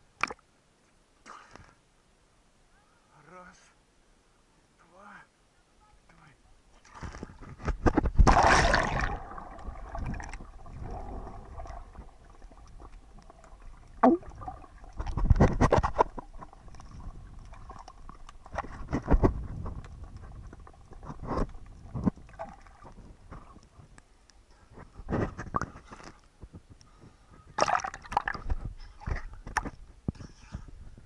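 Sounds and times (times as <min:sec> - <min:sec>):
rushing surges of water underwater: 0:07.9 - 0:23.3
splash into water: 0:08.1 - 0:11.7, 0:27.6 - 0:28.4.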